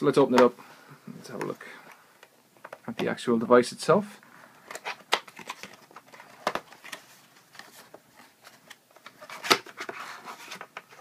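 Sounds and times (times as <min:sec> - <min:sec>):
cardboard scraping against cardboard: 0:09.2 - 0:11.0.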